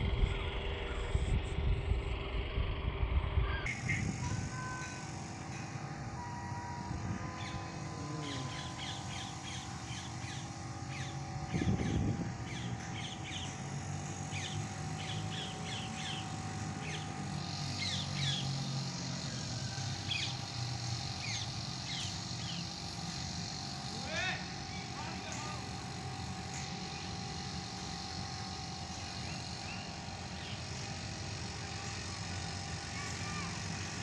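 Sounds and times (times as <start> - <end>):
steady low rumble: 0.0 - 17.6
birds chirping: 6.2 - 33.3.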